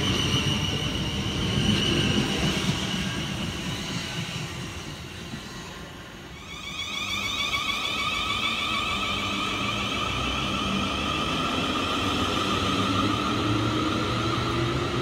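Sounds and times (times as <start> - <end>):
wheels rumbling on rail: 7.2 - 15.0.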